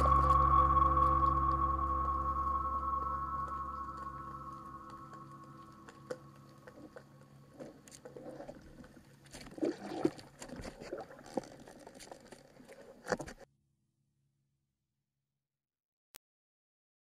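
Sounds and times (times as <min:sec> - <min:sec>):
water sloshing underwater: 0:03.0 - 0:13.4.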